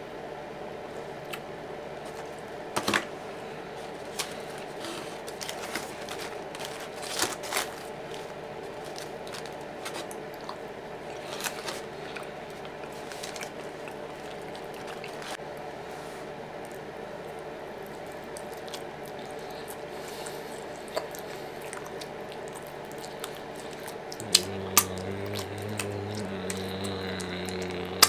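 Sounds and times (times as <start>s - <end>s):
sipping and gulping: 10.0s - 15.4s, 17.9s - 28.0s
low hum: 23.6s - 28.0s.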